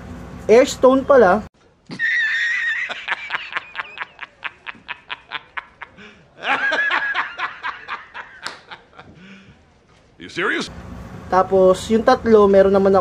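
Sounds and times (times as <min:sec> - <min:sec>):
man laughing hard: 0:01.9 - 0:09.3.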